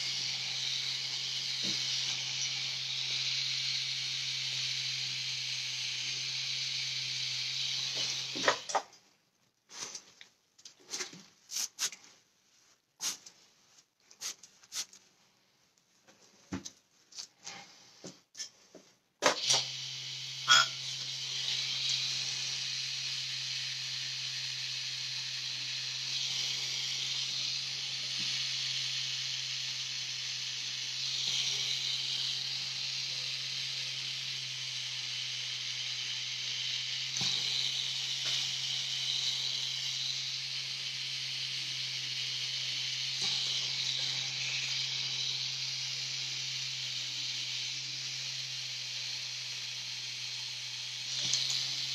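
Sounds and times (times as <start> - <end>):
tattoo machine buzzing: 0.0 - 8.8, 19.2 - 51.9.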